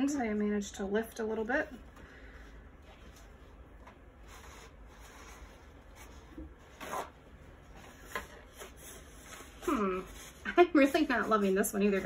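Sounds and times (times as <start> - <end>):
low steady hum: 0.0 - 12.0
rubbing and scraping of materials: 2.8 - 12.0.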